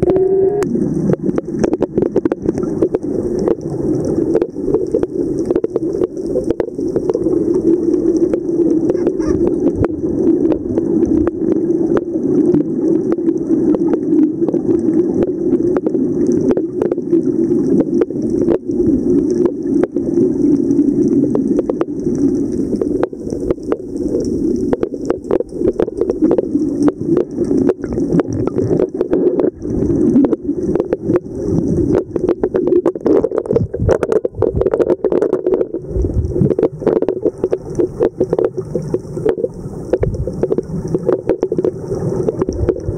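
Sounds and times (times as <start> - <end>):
underwater hum: 0.0 - 42.9.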